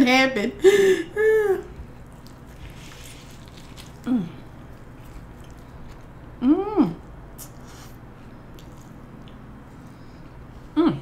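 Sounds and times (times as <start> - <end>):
faint chewing: 1.8 - 6.4, 7.4 - 10.5
woman humming mmm: 4.0 - 4.4, 6.4 - 7.1, 10.7 - 11.0.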